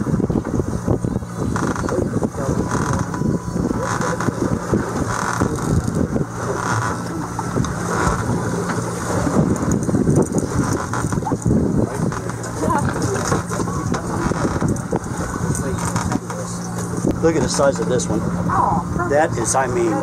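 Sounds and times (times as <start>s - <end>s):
outboard engine idling: 0.0s - 20.0s
wind buffeting microphone: 0.0s - 20.0s.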